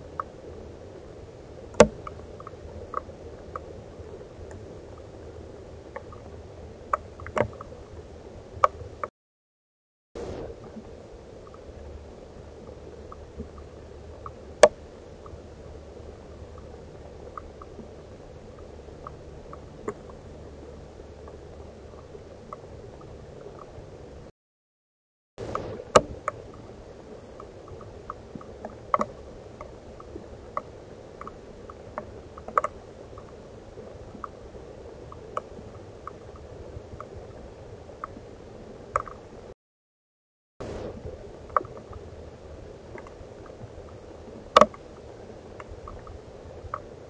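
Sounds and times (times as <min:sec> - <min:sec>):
soft ticks and clicks: 0:00.0 - 0:00.4, 0:01.7 - 0:07.8, 0:08.6 - 0:09.1, 0:11.4 - 0:24.3, 0:25.4 - 0:39.4, 0:41.4 - 0:42.1, 0:42.9 - 0:47.0
microphone hiss: 0:10.2 - 0:24.3, 0:25.4 - 0:39.5.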